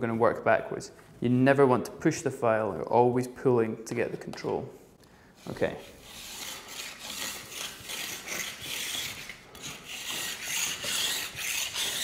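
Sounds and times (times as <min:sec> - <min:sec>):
metal file rasping on ski edge: 0:05.4 - 0:12.0.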